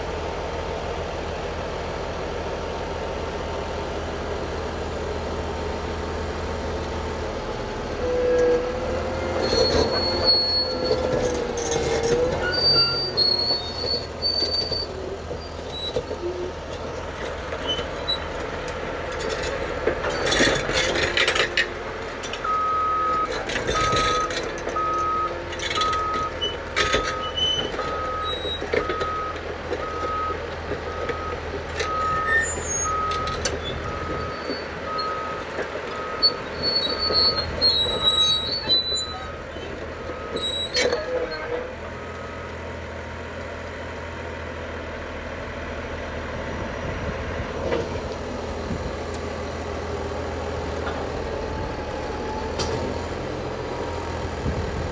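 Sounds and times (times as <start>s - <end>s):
steel tracks squealing: 7.9s - 16.6s, 17.6s - 18.4s, 23.2s - 29.2s, 31.9s - 41.8s.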